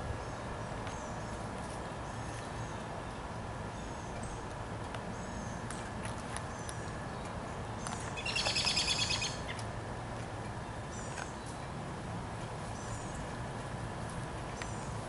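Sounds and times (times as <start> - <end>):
small birds calling: 6.5 - 9.6.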